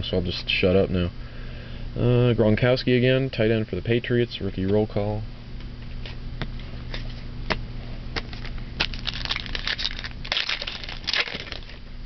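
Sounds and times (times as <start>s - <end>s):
wrapper crinkling and tearing: 8.3s - 11.8s.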